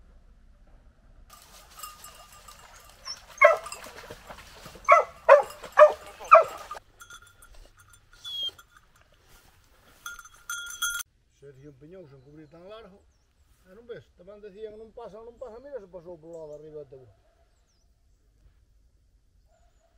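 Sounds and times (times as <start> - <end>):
dog barking: 2.6 - 6.8, 17.0 - 17.6, 19.5 - 19.9.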